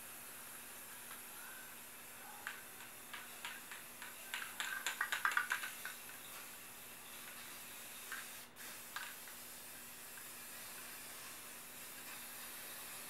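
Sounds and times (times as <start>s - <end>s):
spray paint can hissing: 0.0s - 13.0s
quick clicks: 2.5s - 6.2s.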